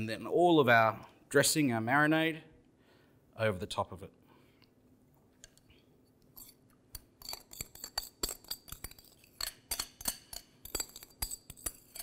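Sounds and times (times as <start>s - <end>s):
utensil scraping glass bowl: 6.4s - 6.6s, 7.2s - 12.0s.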